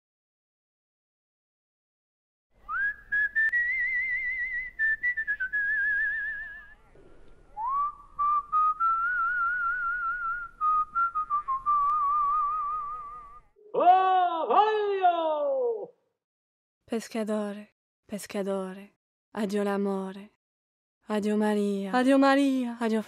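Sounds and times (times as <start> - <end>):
person whistling a melody: 2.7 - 6.7, 7.6 - 13.5.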